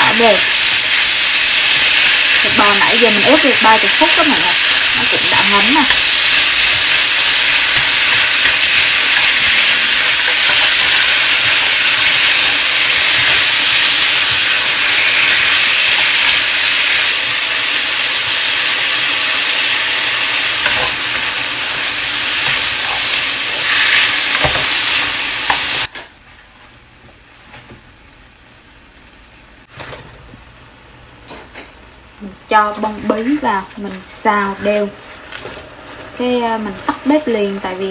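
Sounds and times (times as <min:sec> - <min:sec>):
meat sizzling in a frying pan: 0:00.0 - 0:25.9.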